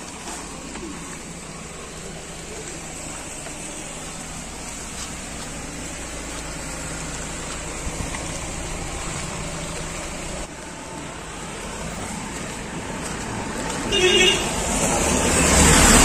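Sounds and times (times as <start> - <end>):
small engine idling: 0.0 - 12.4
steady rain falling: 0.0 - 13.8.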